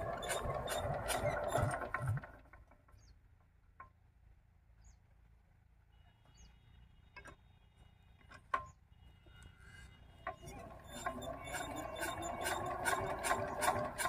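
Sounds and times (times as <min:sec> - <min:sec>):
diesel engine turning over: 0:00.0 - 0:03.1, 0:10.2 - 0:14.0
bird chirps: 0:06.3 - 0:06.8.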